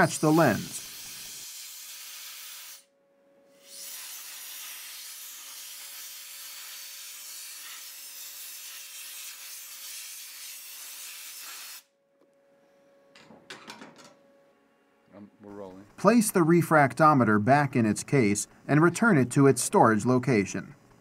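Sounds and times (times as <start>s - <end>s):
air blow gun hissing: 0.0s - 2.9s, 3.6s - 11.8s.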